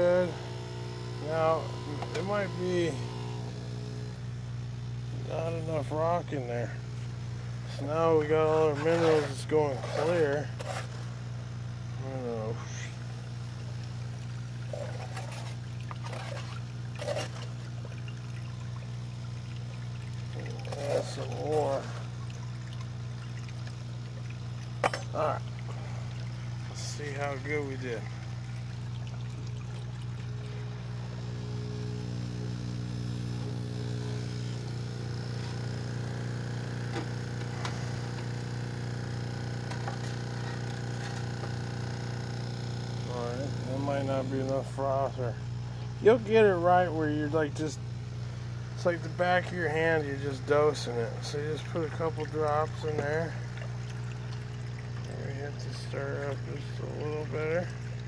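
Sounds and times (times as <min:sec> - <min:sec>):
low motor hum: 0:00.0 - 0:58.0
slurry bubbling and trickling: 0:07.7 - 0:44.8, 0:47.9 - 0:58.0
short splashes: 0:08.5 - 0:11.2, 0:12.7 - 0:31.2, 0:48.7 - 0:58.0.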